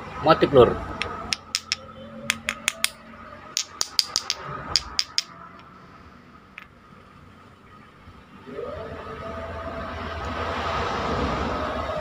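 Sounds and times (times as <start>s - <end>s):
stones clicking together: 1.0s - 3.0s, 3.6s - 5.3s.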